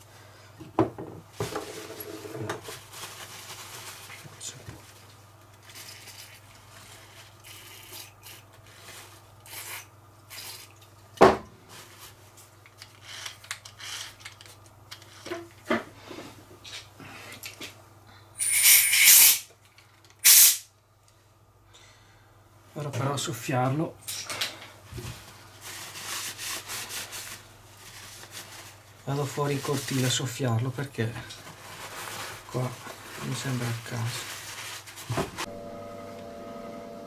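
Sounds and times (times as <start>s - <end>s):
paper towel rustling: 1.3s - 7.4s, 8.5s - 9.3s, 11.6s - 12.5s, 24.9s - 35.6s.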